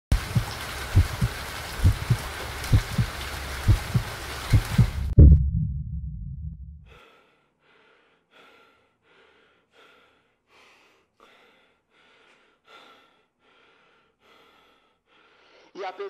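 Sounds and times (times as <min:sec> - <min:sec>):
deep boom: 0:04.6 - 0:07.0.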